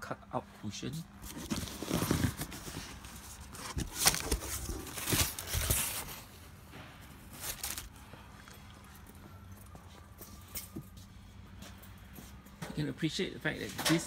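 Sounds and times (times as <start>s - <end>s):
cardboard carton being opened: 1.2s - 6.3s, 7.4s - 7.9s
plastic wrapping rustling: 1.2s - 6.5s, 7.2s - 8.1s.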